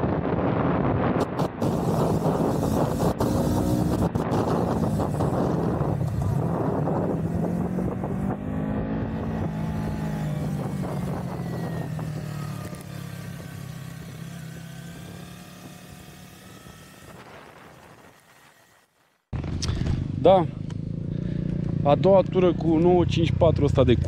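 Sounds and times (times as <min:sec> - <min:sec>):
motorcycle engine running: 0:01.2 - 0:18.8, 0:19.4 - 0:24.0.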